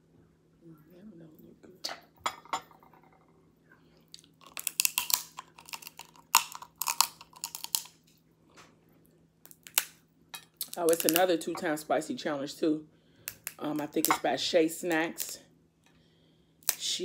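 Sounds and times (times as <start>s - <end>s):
crab shell cracking: 4.1s - 8.0s, 9.4s - 10.0s, 10.6s - 11.2s, 13.3s - 14.0s.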